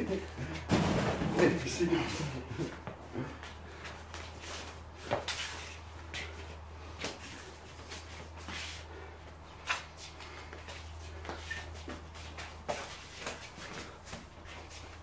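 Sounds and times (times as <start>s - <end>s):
steady low hum: 0.0s - 15.0s
sneakers scuffing on concrete: 9.6s - 15.0s.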